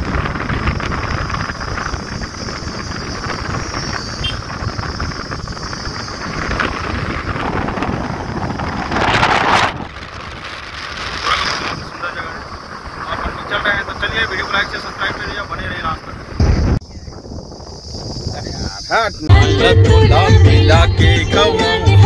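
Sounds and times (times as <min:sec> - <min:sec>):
car road noise: 0:00.0 - 0:16.9
wind buffeting microphone: 0:00.0 - 0:19.3.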